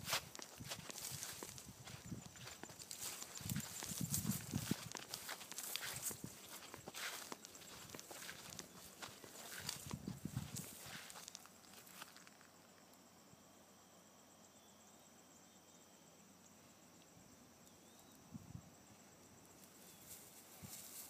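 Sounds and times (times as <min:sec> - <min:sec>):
insect trill: 0:00.0 - 0:21.0
faint chirps: 0:13.0 - 0:20.4.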